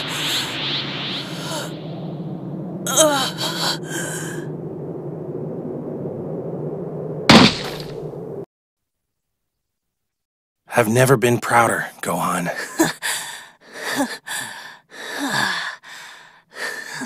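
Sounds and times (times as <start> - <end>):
low rumble: 0.0 - 8.5
body crashing on rocky ground: 7.3 - 8.0.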